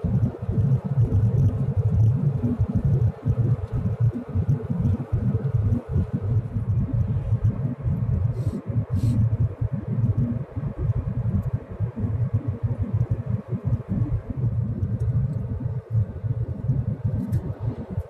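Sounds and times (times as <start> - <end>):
car cabin road and engine rumble: 1.4 - 18.0.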